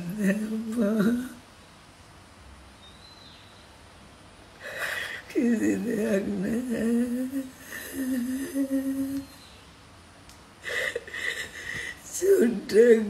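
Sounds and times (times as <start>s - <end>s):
woman crying: 0.0s - 1.4s, 4.6s - 9.3s, 10.6s - 13.0s.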